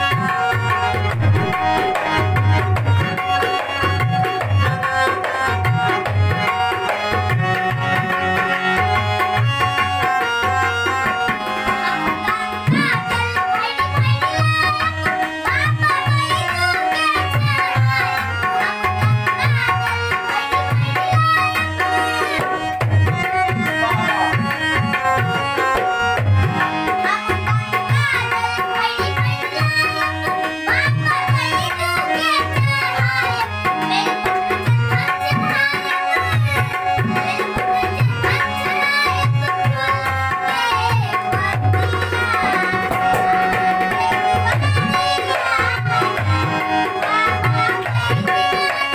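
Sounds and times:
dholak drum beating: 0:00.0 - 0:48.9
harmonium chords: 0:00.0 - 0:48.9
person singing: 0:10.0 - 0:48.9.

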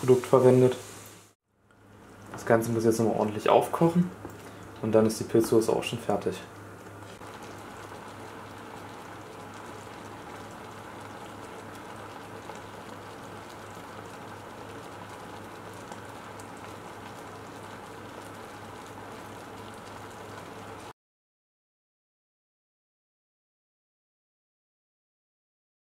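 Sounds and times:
low steady hum: 0:00.0 - 0:20.9
sauce bubbling in a frying pan: 0:04.0 - 0:20.9.

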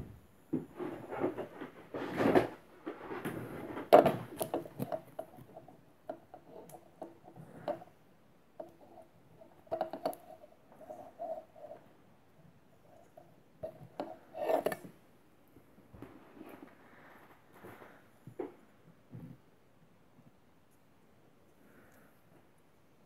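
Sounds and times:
hands rubbing and rustling cable: 0:00.6 - 0:12.1, 0:15.6 - 0:19.4.

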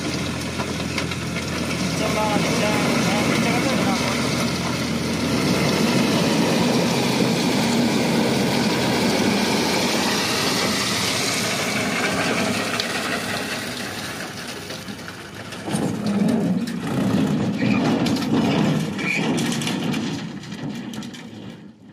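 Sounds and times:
tractor diesel engine running: 0:00.0 - 0:21.9.

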